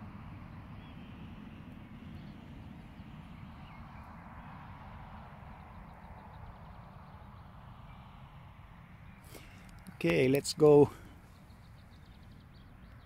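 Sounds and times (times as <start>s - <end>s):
steady distant hum: 0.0s - 13.0s
wind rumble on microphone: 0.0s - 13.0s
faint bird calls: 9.0s - 13.0s.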